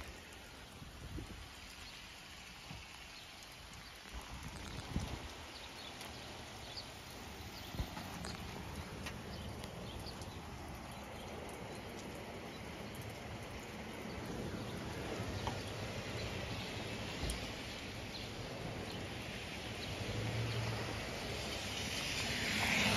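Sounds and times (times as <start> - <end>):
raindrop ticks: 0.0 - 22.9
steady rain hiss: 0.0 - 22.9.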